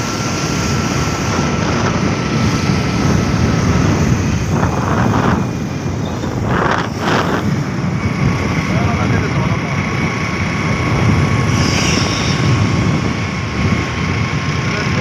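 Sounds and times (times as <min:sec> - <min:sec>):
road noise: 0:00.0 - 0:15.0
vehicle engine rumble: 0:00.0 - 0:15.0
wind buffeting microphone: 0:00.0 - 0:15.0
hissing swells: 0:11.1 - 0:14.4.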